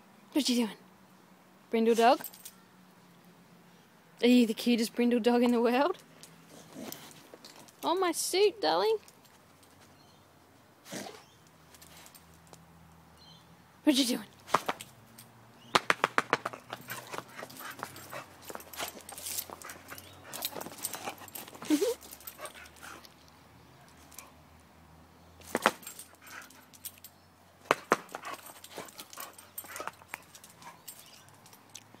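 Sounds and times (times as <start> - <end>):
sharp clicks and knocks: 15.7 - 17.9
dog scuffling around: 16.4 - 23.0.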